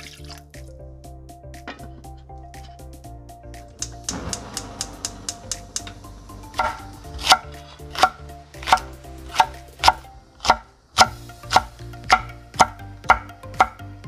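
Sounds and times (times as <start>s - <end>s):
knife slicing chili peppers: 6.6s - 13.8s
knife knocking on wooden board: 12.1s - 13.8s.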